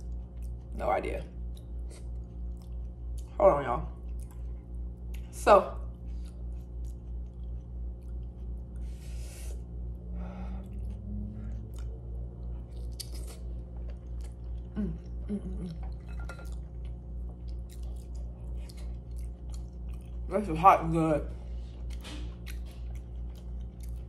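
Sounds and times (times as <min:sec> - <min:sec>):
wet chewing and lip smacks: 0:00.0 - 0:00.7, 0:01.4 - 0:03.3, 0:04.0 - 0:05.3, 0:05.9 - 0:08.9, 0:10.6 - 0:14.8, 0:15.8 - 0:20.3, 0:21.8 - 0:24.0
steady low hum: 0:00.0 - 0:24.0
person humming mm: 0:14.7 - 0:15.8.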